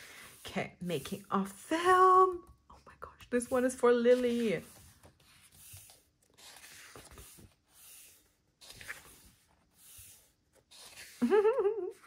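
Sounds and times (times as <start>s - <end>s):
book pages turning: 3.4s - 11.2s.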